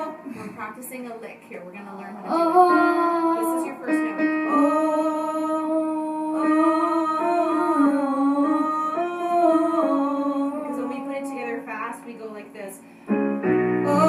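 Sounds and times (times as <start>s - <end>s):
girl singing into a microphone: 2.2s - 12.0s.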